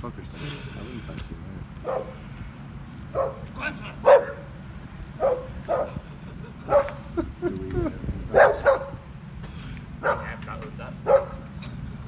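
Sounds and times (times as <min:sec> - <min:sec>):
dogs barking: 0:01.8 - 0:02.2, 0:03.1 - 0:06.0, 0:06.6 - 0:07.2, 0:08.3 - 0:09.0, 0:10.0 - 0:10.4, 0:11.0 - 0:11.5.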